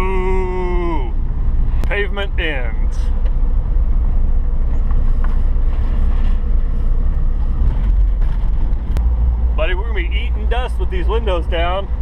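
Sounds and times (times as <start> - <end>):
engine and tyre rumble: 0.0 - 12.0
wind noise through windows: 3.1 - 9.6.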